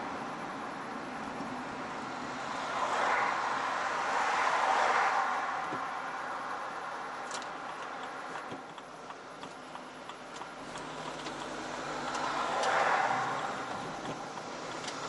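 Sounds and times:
tyre and road noise: 0:00.0 - 0:15.0
car passing close: 0:02.0 - 0:08.7, 0:09.8 - 0:15.0
faint ticks: 0:07.2 - 0:12.8.

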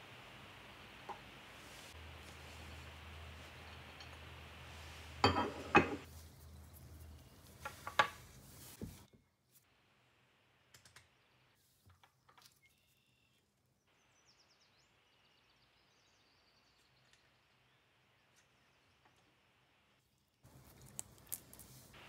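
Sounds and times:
faint clicks: 0:10.7 - 0:11.1
knife shaving plastic ticks: 0:20.5 - 0:22.0.

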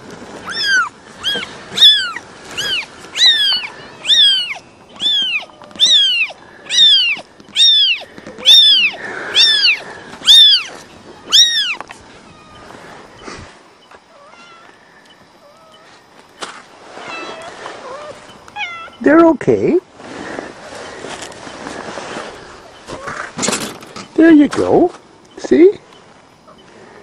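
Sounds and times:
kitten mewing: 0:00.4 - 0:11.8.

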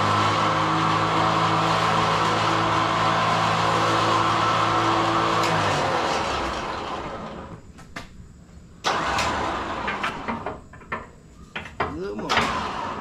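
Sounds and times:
electric winch motor running: 0:00.0 - 0:07.6, 0:08.8 - 0:10.6, 0:12.2 - 0:13.0.

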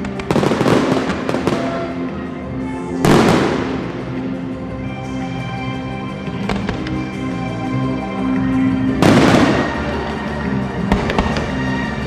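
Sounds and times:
firework cracks: 0:00.0 - 0:02.0, 0:03.0 - 0:04.1, 0:06.4 - 0:07.0, 0:09.0 - 0:10.2, 0:10.9 - 0:11.6
music playing: 0:00.0 - 0:12.0.

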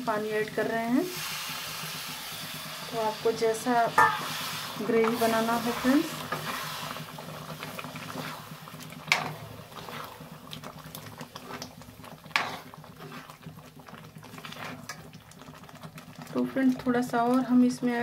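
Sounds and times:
gravy bubbling in a pan: 0:00.0 - 0:18.0
spoon knocking against pan: 0:04.0 - 0:04.3
spoon stirring: 0:12.3 - 0:13.5, 0:14.2 - 0:15.1.

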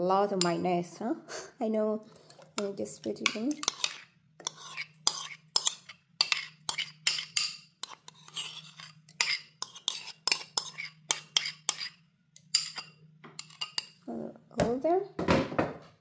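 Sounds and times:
metal spoon scraping a bowl: 0:02.2 - 0:14.0.

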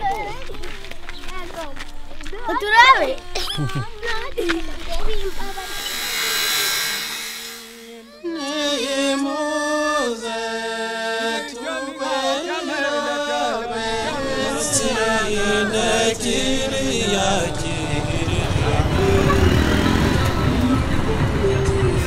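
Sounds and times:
chant-like singing: 0:07.6 - 0:22.0.

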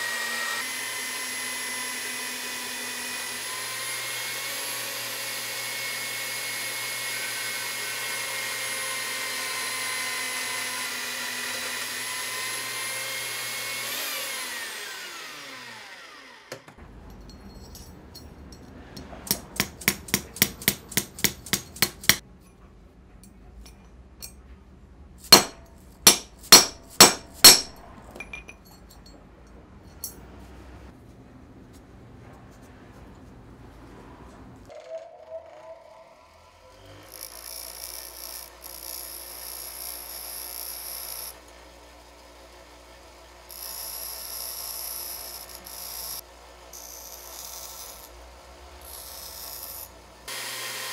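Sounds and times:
band saw running: 0:00.0 - 0:16.7, 0:35.9 - 0:50.9
mallet striking steel strip: 0:19.3 - 0:22.2, 0:25.3 - 0:27.8.

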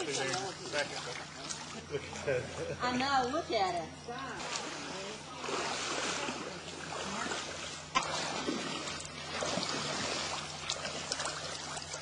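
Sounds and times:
people wading and splashing: 0:00.0 - 0:12.0
stream water over rocks: 0:04.3 - 0:12.0.

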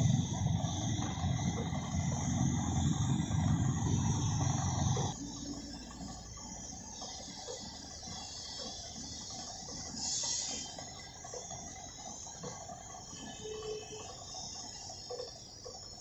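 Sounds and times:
workshop background: 0:00.0 - 0:16.0
paint spray gun air hiss: 0:06.9 - 0:14.8.

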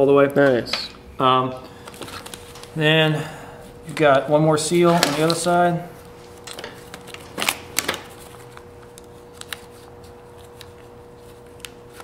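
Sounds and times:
faint steady hum: 0:00.0 - 0:12.0
plastic packaging crinkling: 0:01.8 - 0:02.8, 0:06.2 - 0:10.7.

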